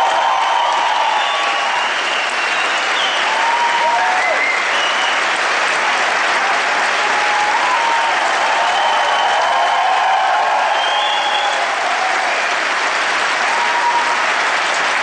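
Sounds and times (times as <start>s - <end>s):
audience applauding: 0.0s - 15.0s.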